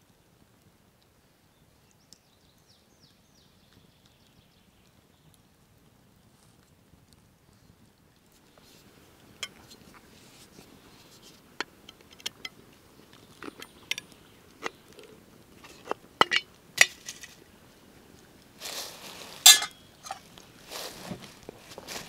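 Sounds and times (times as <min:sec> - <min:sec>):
short rustle: 0:18.6 - 0:22.0.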